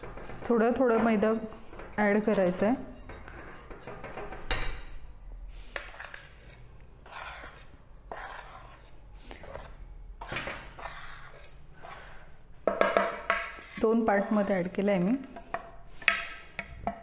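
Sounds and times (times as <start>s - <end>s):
spoon scraping a plate: 1.1s - 16.6s
whisk scraping in glass bowl: 5.7s - 12.2s, 13.1s - 16.2s.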